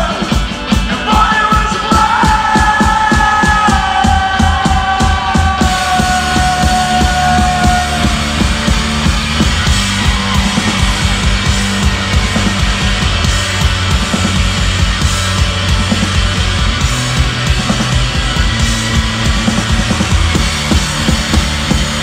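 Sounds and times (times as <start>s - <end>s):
rock band playing live: 0.0s - 22.0s.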